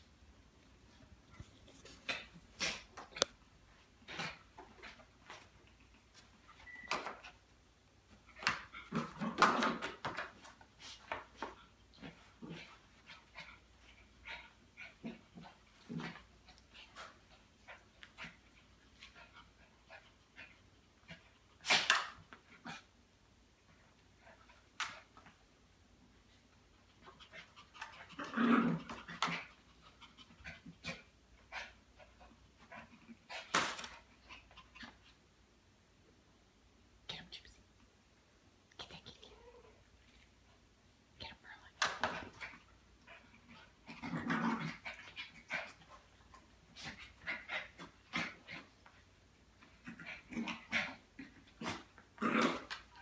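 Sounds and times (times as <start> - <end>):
small dog growling and whimpering: 27.3 - 29.5, 43.1 - 45.9, 49.6 - 52.9.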